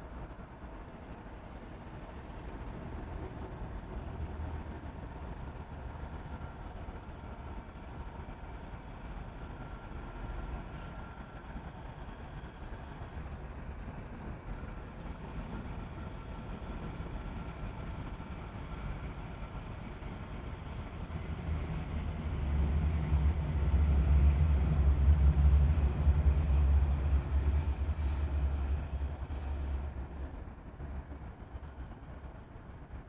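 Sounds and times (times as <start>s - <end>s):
background traffic noise: 0.0s - 33.0s
vehicle passing rumble: 21.1s - 30.2s.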